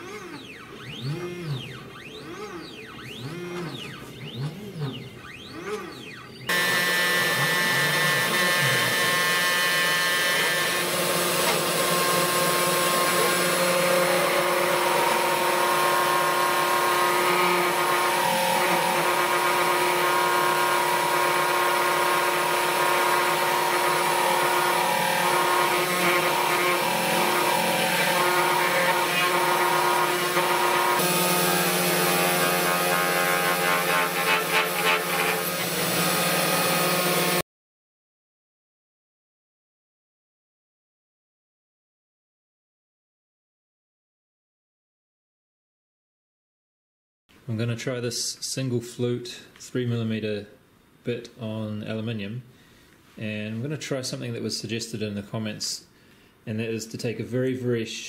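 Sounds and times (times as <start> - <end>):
cnc router machine whir: 0.0 - 37.4
spindle bit cutting a sheet: 0.0 - 37.4.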